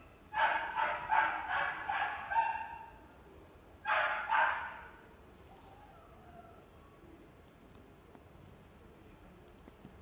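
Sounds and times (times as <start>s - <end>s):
puppy yipping: 0.4s - 2.8s.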